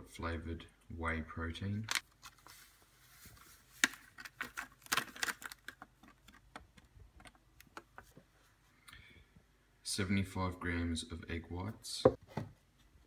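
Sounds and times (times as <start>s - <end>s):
plastic sachet crinkling: 3.8s - 6.6s.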